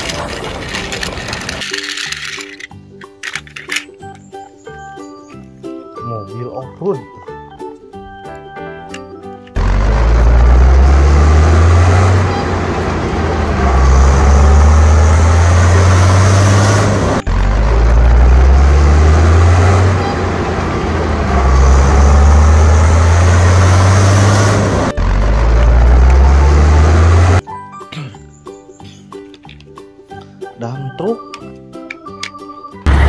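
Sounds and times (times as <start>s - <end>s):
vehicle engine running: 9.6s - 27.4s.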